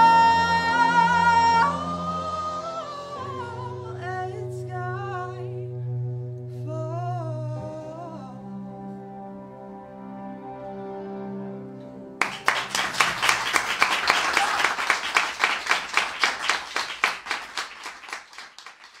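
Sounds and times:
audience applause: 12.2 - 19.0.

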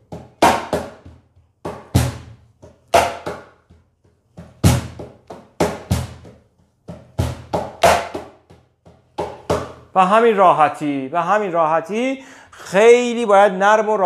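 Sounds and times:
cajon struck with hands: 0.0 - 9.9.

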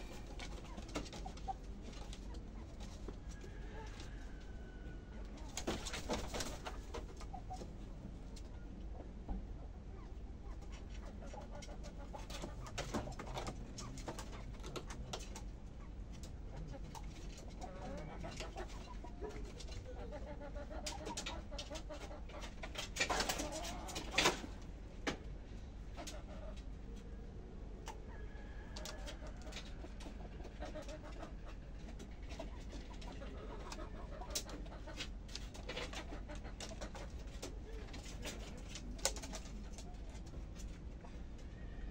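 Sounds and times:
chickens clucking softly: 0.0 - 41.9
soft cooing bird calls: 15.7 - 22.5.

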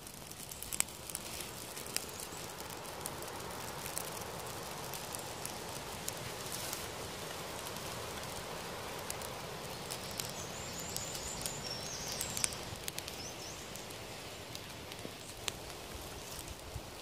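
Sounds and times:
campfire crackling and popping: 0.0 - 17.0
bird chirping: 9.7 - 14.7.

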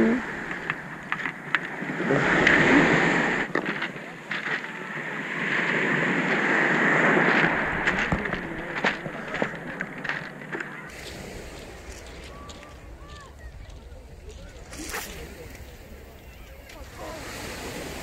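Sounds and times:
waves washing on pebble beach: 0.0 - 13.2, 14.4 - 18.0.

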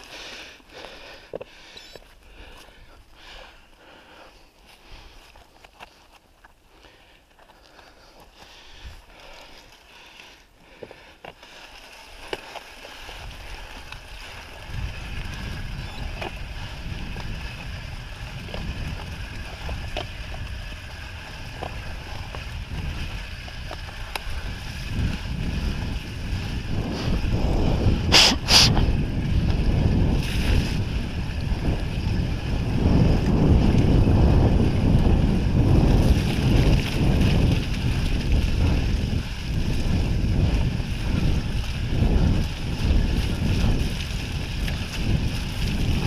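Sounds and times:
bike tyres rolling on dirt: 0.0 - 46.0
wind buffeting microphone: 13.0 - 46.0.

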